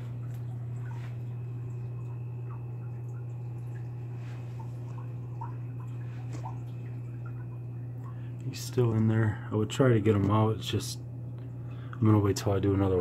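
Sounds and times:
water dripping: 0:00.0 - 0:09.2
aquarium filter humming: 0:00.0 - 0:13.0.

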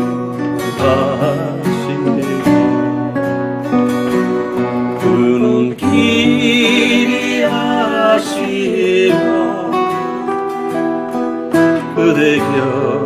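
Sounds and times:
acoustic guitars strummed: 0:00.0 - 0:13.0
man and woman singing duet: 0:05.0 - 0:10.3, 0:11.9 - 0:13.0.

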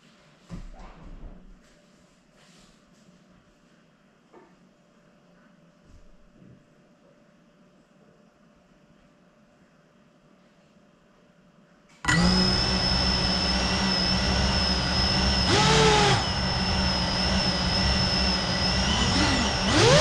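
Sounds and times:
drone motors whining: 0:12.1 - 0:20.0.

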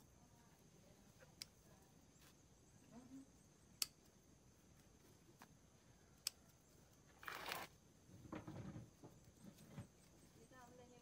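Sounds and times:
plant rustling: 0:04.6 - 0:11.0.

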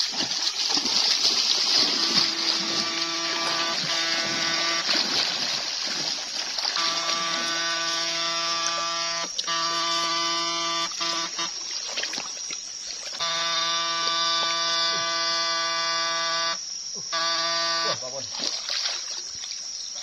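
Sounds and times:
water sloshing: 0:00.0 - 0:15.1, 0:18.2 - 0:20.0
high-pitched electrical buzz: 0:01.7 - 0:06.0, 0:06.6 - 0:11.9, 0:13.1 - 0:18.2.

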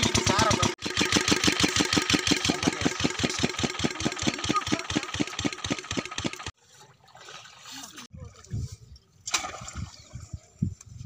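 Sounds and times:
engine running with pulsing beat: 0:00.0 - 0:06.5.

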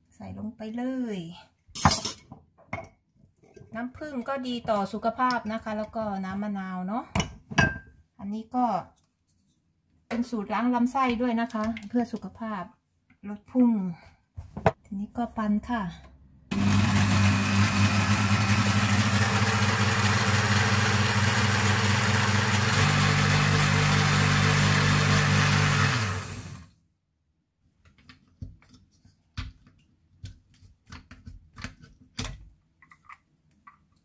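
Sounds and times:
electric blender running: 0:16.5 - 0:26.7.

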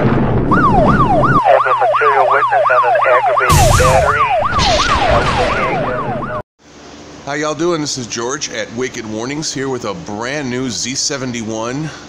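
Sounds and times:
electronic siren yelping: 0:00.5 - 0:06.4.

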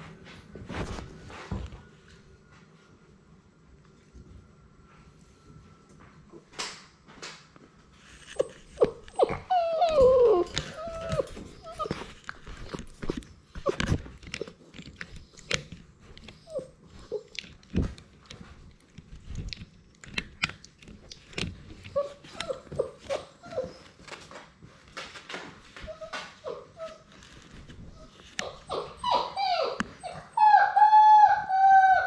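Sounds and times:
puppies chewing on camera: 0:08.0 - 0:30.9
clicks and knocks against camera: 0:08.2 - 0:16.6
puppy whines and yips: 0:08.3 - 0:14.5, 0:16.3 - 0:17.4, 0:21.9 - 0:24.2, 0:25.8 - 0:27.1, 0:27.8 - 0:32.0
puppy whimper: 0:08.3 - 0:14.6, 0:16.2 - 0:17.6, 0:21.9 - 0:24.2, 0:25.8 - 0:32.0.

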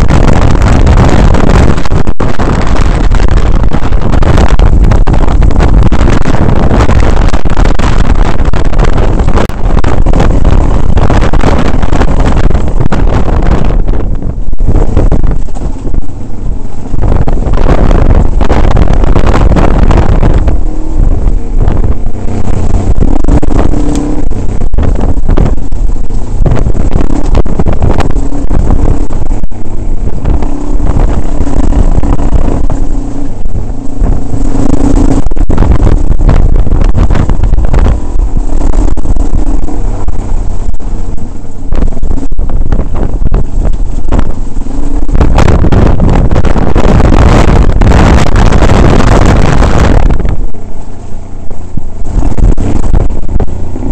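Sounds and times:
wind on microphone: 0:00.0 - 0:53.9
motorcycle engine revving: 0:16.8 - 0:50.5.

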